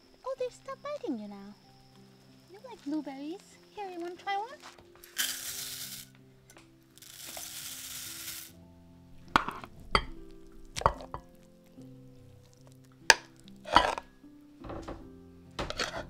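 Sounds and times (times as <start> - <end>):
background music: 0.0 - 16.0
hiss: 5.1 - 6.2, 7.0 - 8.6
metal spoon scraping saucepan: 9.3 - 10.2, 13.1 - 14.1, 15.6 - 16.0.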